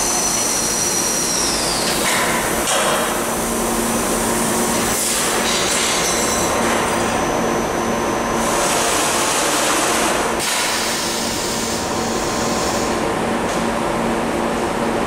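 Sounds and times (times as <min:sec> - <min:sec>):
laser cutting machine hiss: 0:10.4 - 0:13.0.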